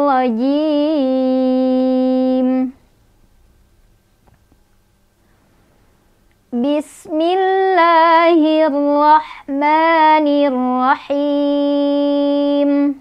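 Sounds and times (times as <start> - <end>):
woman chanting recitation: 0.0 - 2.8, 6.5 - 13.0.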